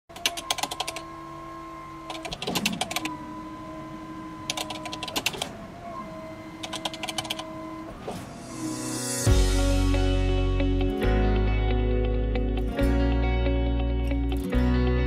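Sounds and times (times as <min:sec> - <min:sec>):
keyboard typing clicks: 0:00.1 - 0:01.0, 0:04.5 - 0:05.5, 0:06.6 - 0:07.5
held chord tones: 0:08.4 - 0:15.0.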